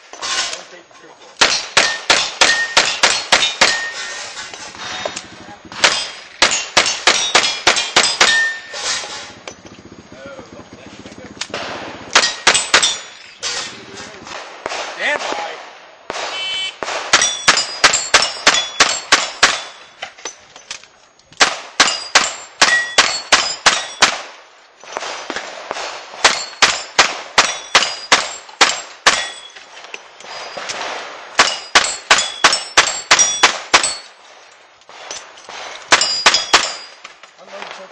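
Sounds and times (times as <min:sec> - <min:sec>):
steel plate ringing: 0:05.9 - 0:09.1, 0:17.2 - 0:20.0, 0:29.1 - 0:29.6.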